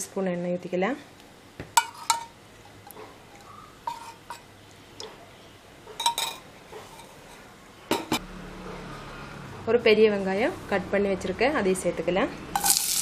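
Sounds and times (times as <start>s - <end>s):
steel spoon clinking on cup: 6.0s - 6.4s, 12.6s - 13.0s.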